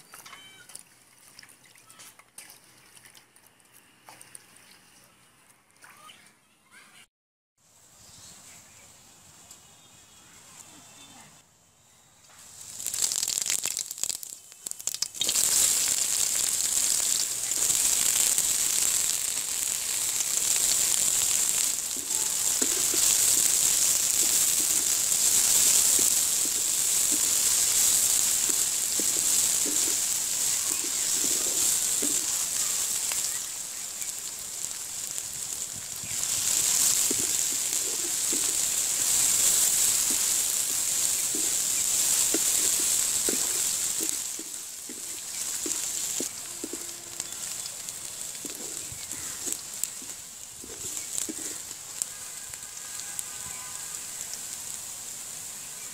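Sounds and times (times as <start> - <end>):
oil sizzling: 12.3 - 55.9
wooden spatula stirring: 36.2 - 51.7.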